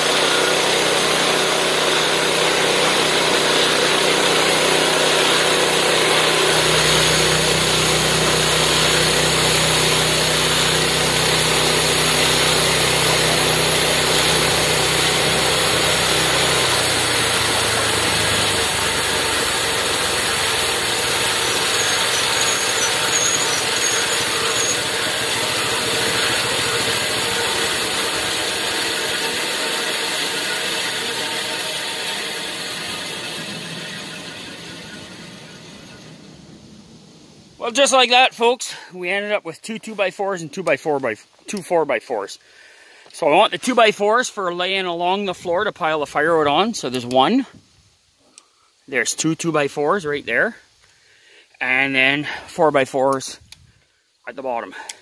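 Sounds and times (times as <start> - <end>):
band saw blade cutting log: 0.0 - 36.2
gas engine humming: 0.0 - 39.0.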